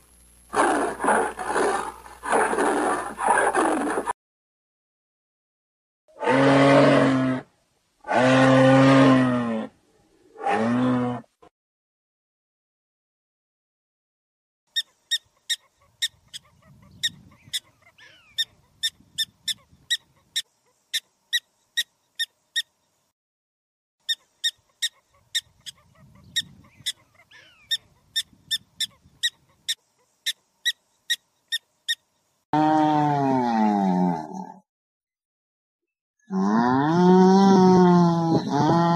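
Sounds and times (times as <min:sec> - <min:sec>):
prairie dog barking: 0:00.5 - 0:04.1, 0:14.7 - 0:22.7, 0:24.0 - 0:32.0.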